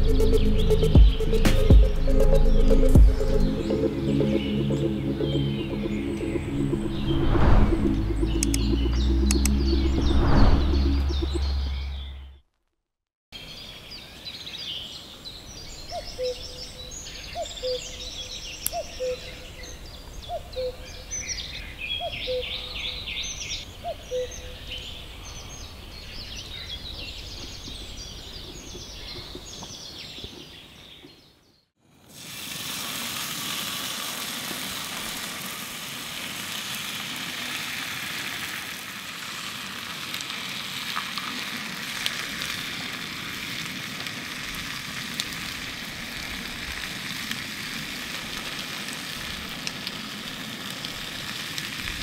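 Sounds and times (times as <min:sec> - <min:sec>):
birds singing: 0:00.0 - 0:07.3, 0:13.4 - 0:31.7
bacon and eggs sizzling in pan: 0:32.1 - 0:52.0.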